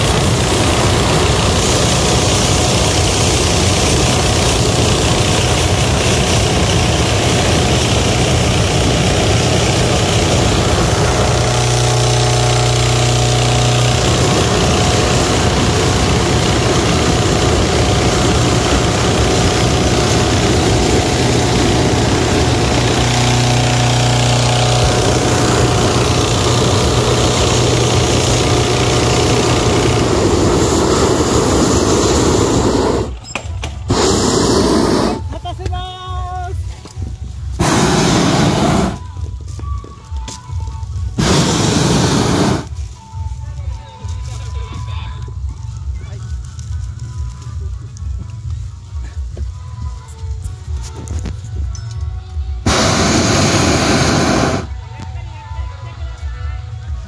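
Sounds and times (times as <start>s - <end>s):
deep buzzing tone: 0.0s - 32.7s
propane burner roaring: 0.0s - 55.2s
engine hum: 0.0s - 57.0s.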